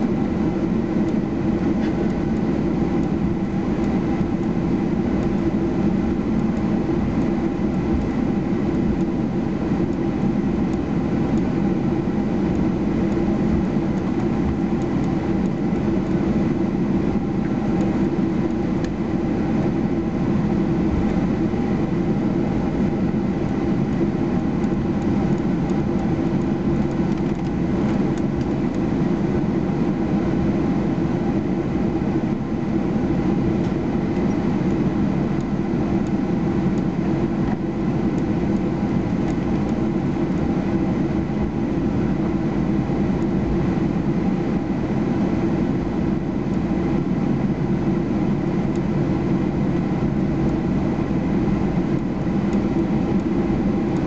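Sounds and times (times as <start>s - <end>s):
jet engines low rumble: 0.0s - 54.0s.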